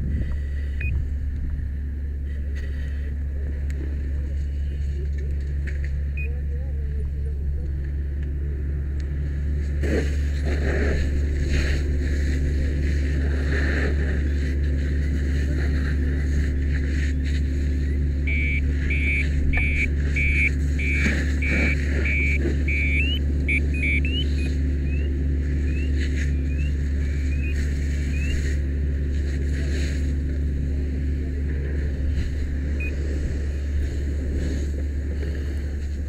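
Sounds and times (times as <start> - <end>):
low engine drone: 0.0 - 36.0
high electronic beeps: 17.8 - 28.4.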